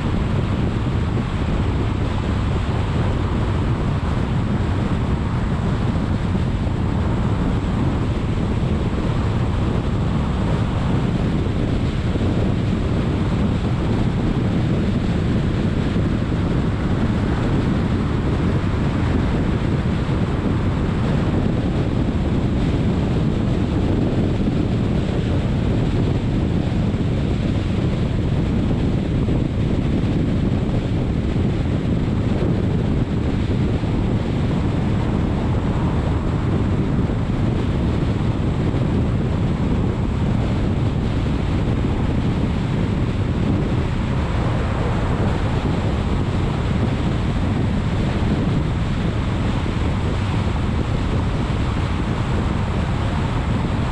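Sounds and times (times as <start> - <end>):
tyres rumbling on road: 0.0 - 53.9
wind and road noise: 0.0 - 53.9.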